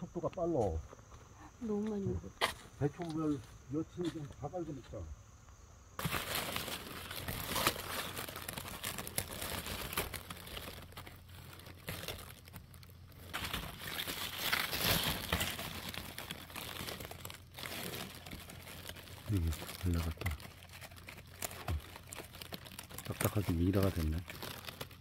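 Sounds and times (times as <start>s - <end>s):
cabbage leaves rustling: 6.0s - 25.0s.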